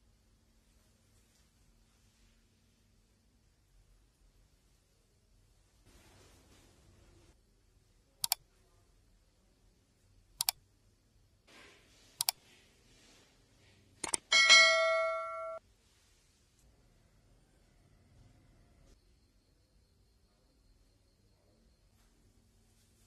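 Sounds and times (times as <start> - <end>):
mouse clicks: 8.2 - 8.4, 10.4 - 10.6, 12.2 - 12.4
bright bell ding: 14.2 - 15.6.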